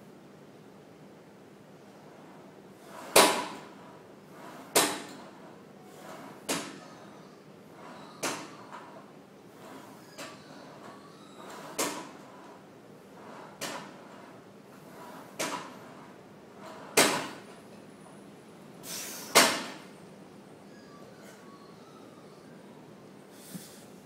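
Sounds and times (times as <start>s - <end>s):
rowing machine seat rolling: 1.9s - 17.6s.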